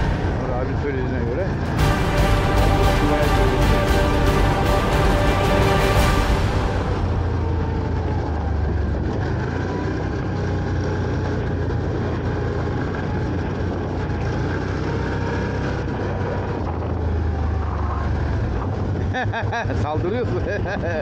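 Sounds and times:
atv engine running: 7.0s - 21.0s.

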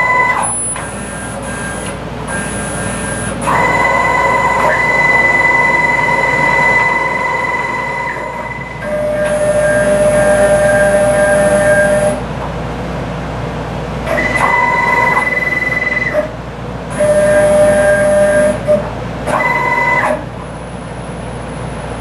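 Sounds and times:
stepper motors whining: 0.0s - 12.2s, 16.9s - 20.3s.

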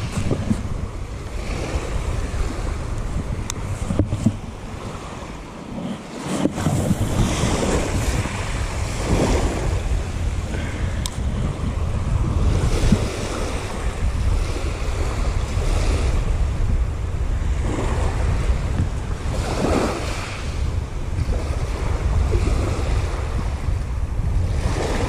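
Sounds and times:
waves washing onto shingle: 0.0s - 16.2s, 17.6s - 20.6s
wind buffeting microphone: 0.0s - 25.0s.

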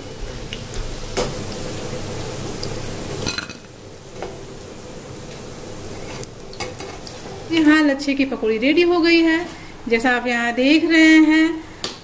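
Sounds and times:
hot oil sizzling: 0.0s - 8.8s.

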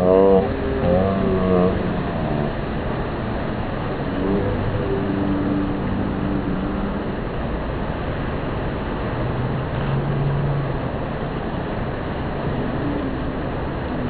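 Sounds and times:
faint low held tones: 0.0s - 8.2s.

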